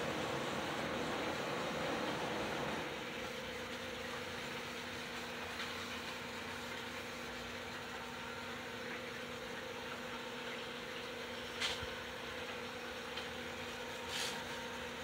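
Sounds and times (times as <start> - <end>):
model trains whirring on rails: 0.0 - 3.1.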